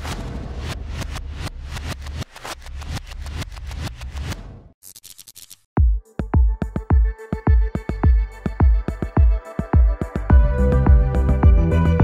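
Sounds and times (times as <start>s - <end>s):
heavy kick-drum beat: 5.8s - 11.7s.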